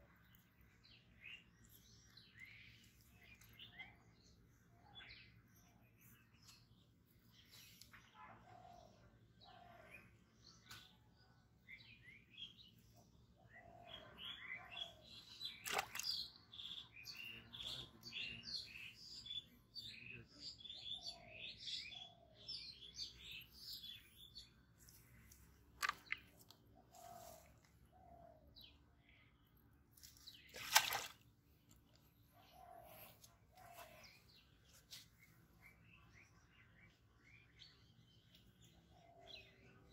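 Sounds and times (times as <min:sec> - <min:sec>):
songbirds chirping: 0:00.0 - 0:39.9.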